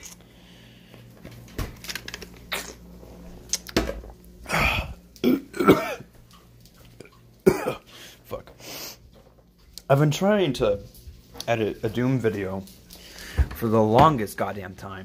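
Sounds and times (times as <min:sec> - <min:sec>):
steady low hum: 0:00.0 - 0:15.0
man coughing and clearing throat: 0:04.5 - 0:06.1, 0:07.4 - 0:07.9.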